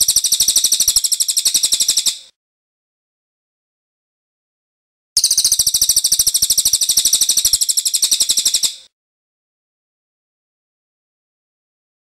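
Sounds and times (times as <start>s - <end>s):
songbird rattling trill: 0.0s - 2.3s, 5.2s - 8.9s.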